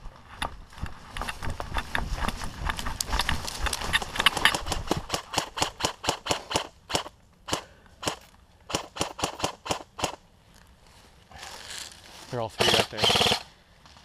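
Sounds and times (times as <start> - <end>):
footsteps crunching through dry leaves: 0.7 - 4.2, 10.5 - 12.5
airsoft gunfire: 4.2 - 10.2, 12.6 - 13.5.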